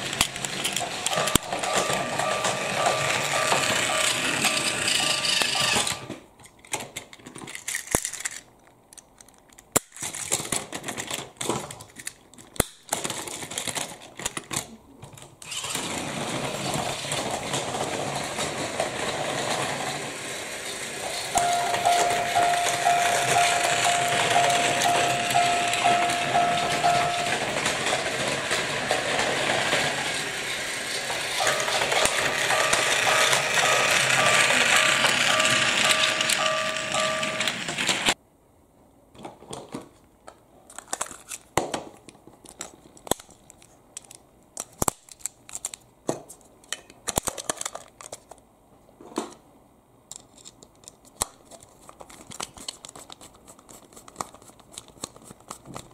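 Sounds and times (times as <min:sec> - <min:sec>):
toy train whirring rattle: 0:00.0 - 0:06.1, 0:07.5 - 0:08.5, 0:15.4 - 0:38.2
steady electronic tone: 0:21.4 - 0:27.6.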